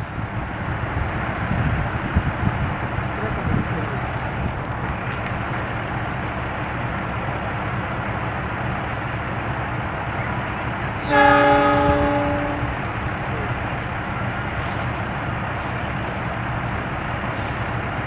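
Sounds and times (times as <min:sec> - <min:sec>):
locomotive horn blast: 0:11.0 - 0:12.8.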